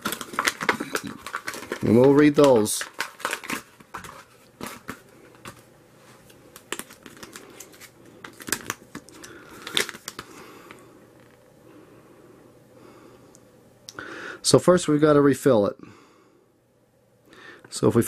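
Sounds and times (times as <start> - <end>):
paper leaflet rustling: 0.0 - 10.3
plastic packaging crinkling: 0.0 - 11.3.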